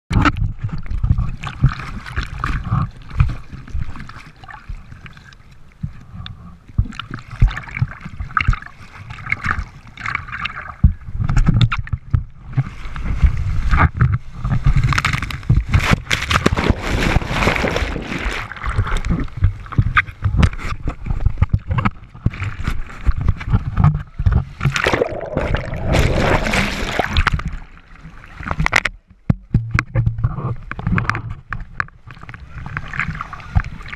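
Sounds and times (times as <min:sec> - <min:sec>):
water slapping camera: 0:00.1 - 0:33.9
breaking waves and whitewater: 0:24.7 - 0:27.6.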